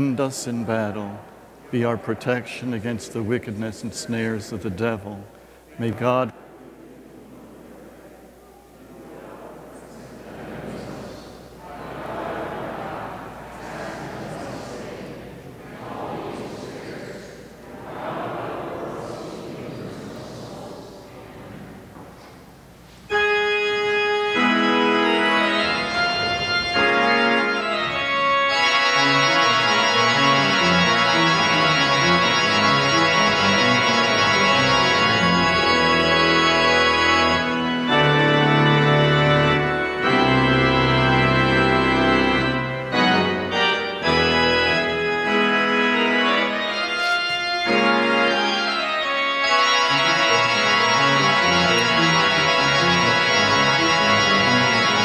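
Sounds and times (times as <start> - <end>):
church organ playing chords: 0.0 - 6.3, 23.1 - 55.0.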